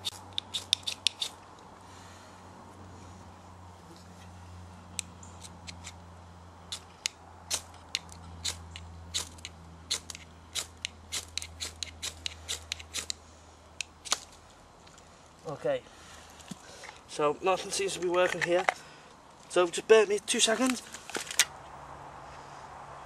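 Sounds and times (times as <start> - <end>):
fire steel striker scraping: 0.0 - 1.4, 5.0 - 6.0.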